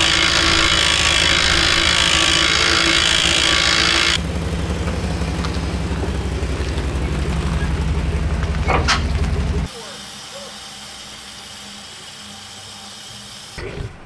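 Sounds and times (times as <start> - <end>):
electric winch whining: 0.0 - 14.0
pickup engine idling: 4.2 - 9.9.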